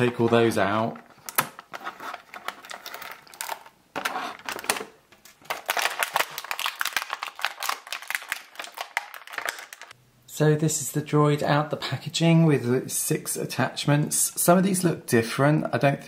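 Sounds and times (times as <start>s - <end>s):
plastic packaging crinkling: 1.0s - 10.0s.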